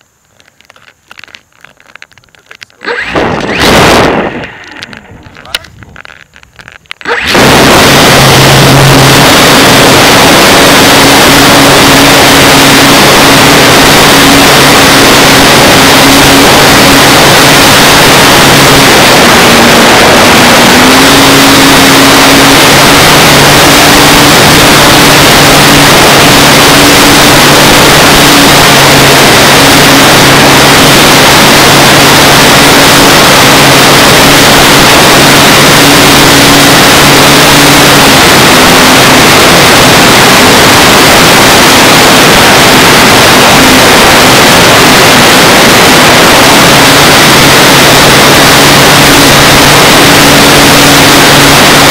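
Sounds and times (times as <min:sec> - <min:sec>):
model plane motor and propeller drone: 0:00.0 - 0:51.9
wind rush on microphone: 0:03.1 - 0:08.6.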